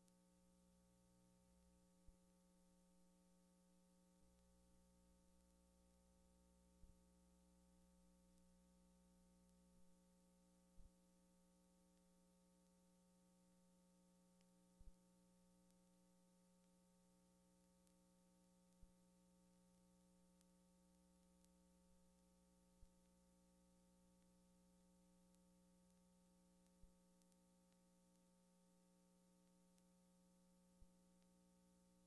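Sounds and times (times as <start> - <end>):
faint steady hum: 0.0 - 32.0.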